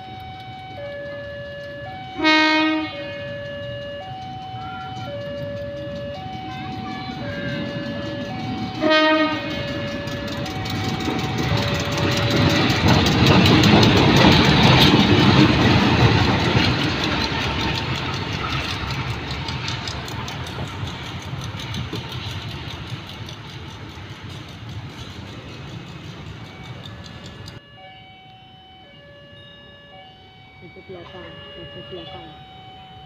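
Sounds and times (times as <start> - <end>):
level-crossing warning chime: 0.0 - 18.2, 26.0 - 33.0
diesel locomotive passing: 0.0 - 33.0
locomotive horn blast: 2.1 - 3.5, 7.0 - 10.8.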